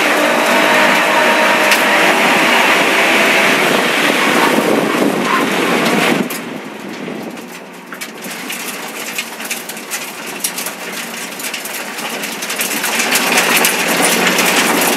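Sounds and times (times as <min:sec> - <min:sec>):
race car engine: 0:00.0 - 0:14.9
tyres rolling on gravel: 0:00.0 - 0:14.9
stones ticking against car: 0:06.2 - 0:14.9.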